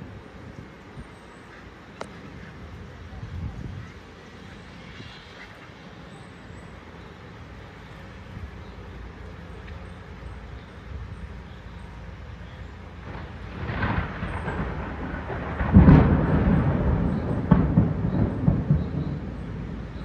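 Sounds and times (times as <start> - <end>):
rolling thunder: 13.0 - 20.0.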